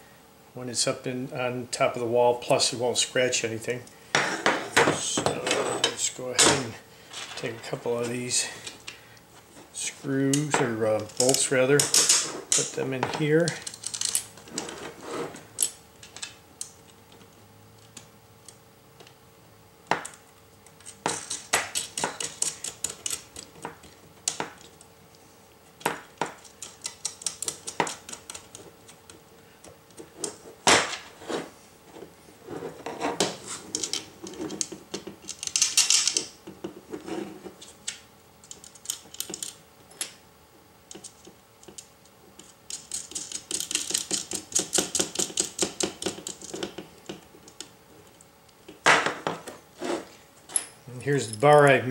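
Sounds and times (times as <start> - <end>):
bolts and nuts clinking on metal: 4.7 - 8.4, 9.8 - 14.8, 33.7 - 36.3, 50.4 - 51.9.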